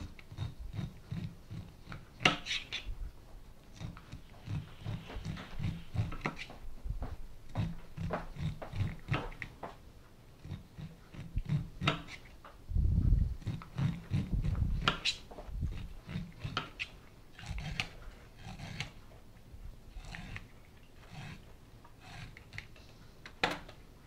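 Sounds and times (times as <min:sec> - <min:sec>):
knife scraping corn kernels: 0:00.0 - 0:03.0, 0:03.7 - 0:06.6, 0:07.5 - 0:09.6, 0:10.4 - 0:12.4, 0:13.4 - 0:19.1, 0:19.9 - 0:23.0.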